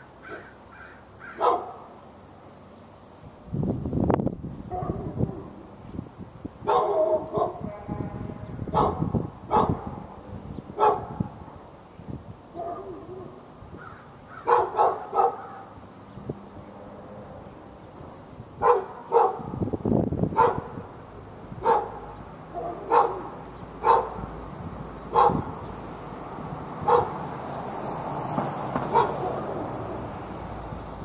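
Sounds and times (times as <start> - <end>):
dog barking: 1.3 - 1.9, 4.7 - 5.5, 6.7 - 7.7, 8.7 - 10.0, 10.8 - 11.3, 12.6 - 13.4, 14.4 - 15.7, 18.6 - 19.6, 20.3 - 20.8, 21.6 - 24.2, 25.1 - 25.5, 26.8 - 27.2, 28.9 - 29.4.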